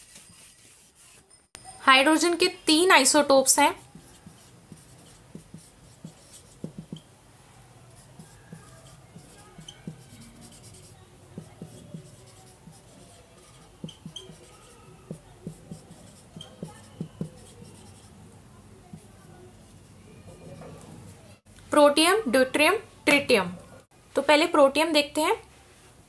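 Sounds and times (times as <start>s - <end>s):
pen scratching on paper: 0.0s - 1.4s, 3.7s - 7.0s, 7.9s - 18.2s.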